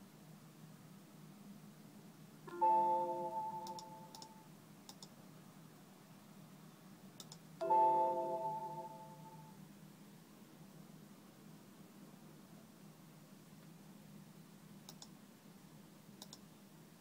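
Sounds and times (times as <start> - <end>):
bell-like alert chime: 2.5 - 4.1, 7.6 - 9.4
faint clicks: 3.6 - 5.2, 7.2 - 7.4, 14.9 - 15.2, 16.2 - 16.5.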